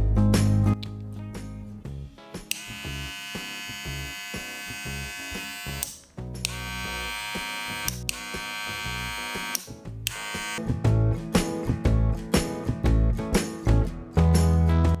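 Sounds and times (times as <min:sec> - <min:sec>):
hair clipper motor buzzing: 0:02.4 - 0:10.6.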